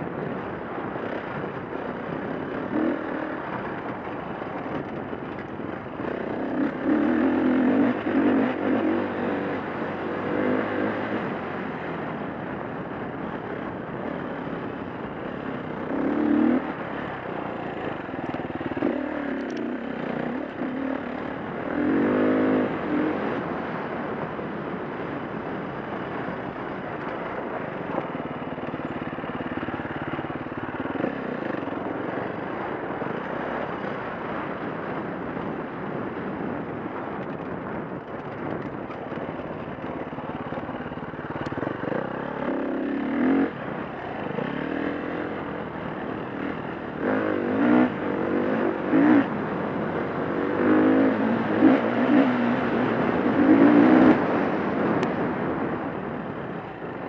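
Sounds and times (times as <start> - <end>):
steady rush of noise: 0.0 - 57.0
dirt bike engine revving: 6.0 - 11.2, 15.9 - 17.1, 17.9 - 23.9, 40.0 - 45.5, 46.3 - 49.4, 50.0 - 54.9.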